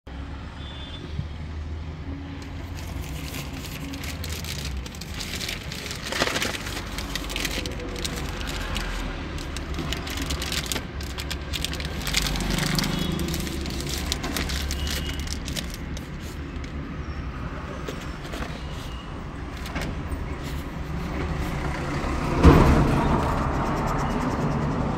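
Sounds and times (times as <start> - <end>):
plastic and cellophane crinkling: 2.6 - 16.7.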